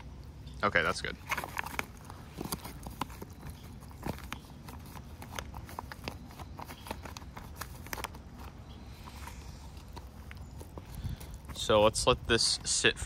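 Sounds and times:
foil pouch crinkling: 1.2s - 11.6s.

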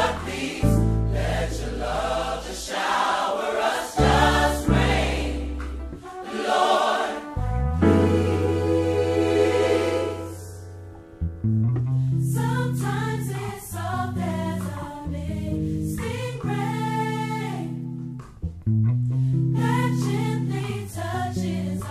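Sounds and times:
choir singing sustained phrases: 0.0s - 10.9s, 12.2s - 15.4s, 19.6s - 21.9s.

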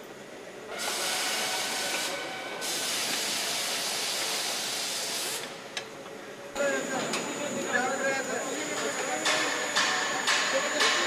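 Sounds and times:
compressed air hissing: 0.7s - 5.7s.

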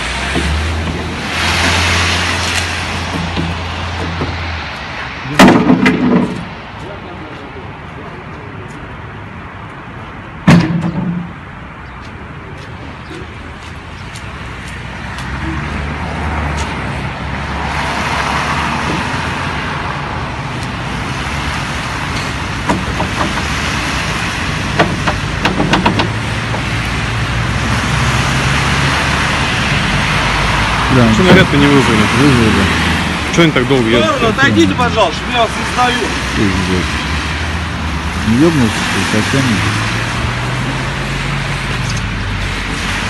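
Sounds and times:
clanks and knocks: 0.3s - 1.8s, 3.0s - 4.5s, 5.4s - 6.6s, 10.4s - 11.4s, 22.2s - 23.5s, 24.7s - 26.7s
loud bang: 5.3s - 6.5s.

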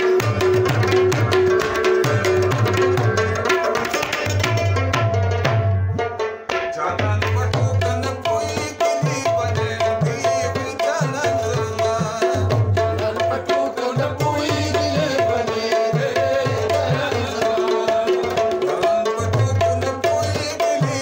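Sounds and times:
man singing: 0.0s - 4.9s, 6.5s - 21.0s
tabla rhythm: 0.0s - 21.0s.

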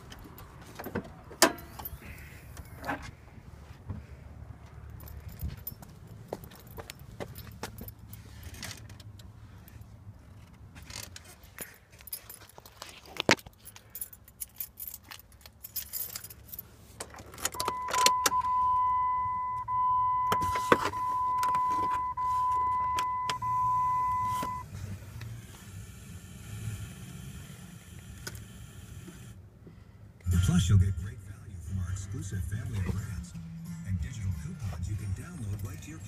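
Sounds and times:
keys jangling: 11.0s - 17.6s
high-pitched warning beep: 17.6s - 24.6s.

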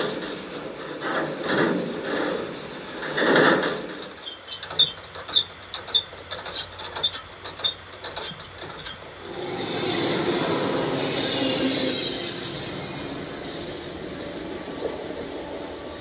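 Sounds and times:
moving freight train: 0.0s - 16.0s
steel wheels squealing on rails: 0.0s - 16.0s
metallic clicks and clanks: 3.0s - 9.2s.

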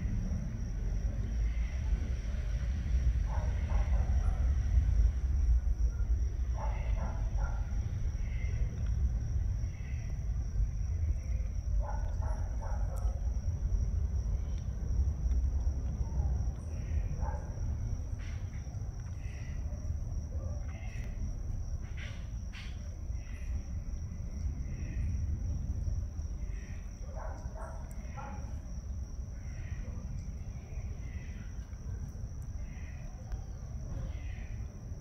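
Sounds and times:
low rumble: 0.0s - 27.1s
high insect drone: 0.0s - 35.0s.

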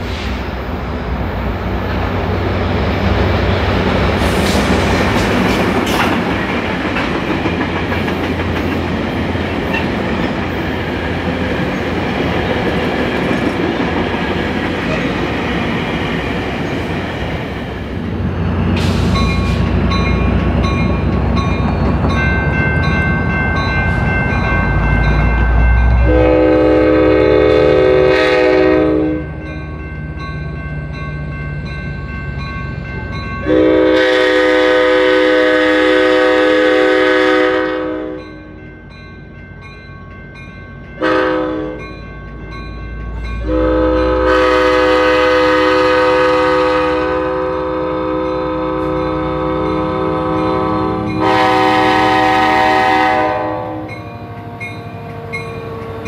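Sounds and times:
passing train rumble: 0.0s - 56.0s
locomotive air horn blasts: 25.9s - 29.4s, 33.4s - 38.2s, 41.0s - 41.8s, 43.4s - 54.0s.

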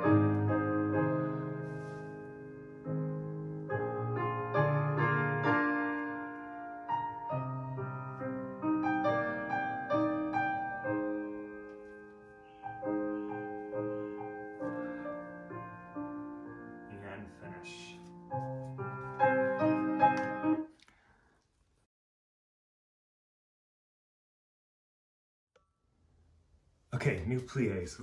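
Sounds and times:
solo piano music: 0.0s - 20.8s.

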